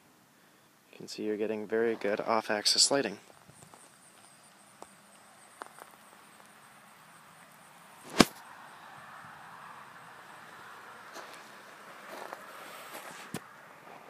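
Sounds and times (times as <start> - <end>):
sharp loud click: 8.1 - 8.4.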